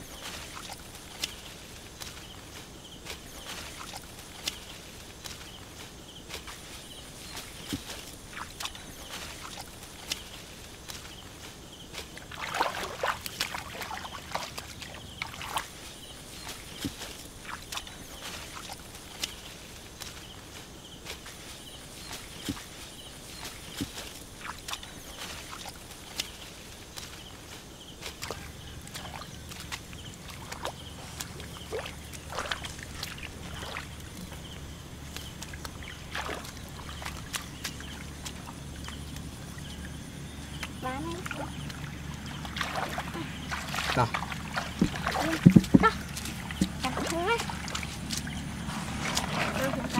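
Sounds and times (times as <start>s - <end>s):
hands splashing in muddy water: 12.0s - 15.8s, 28.0s - 39.8s, 40.5s - 49.9s.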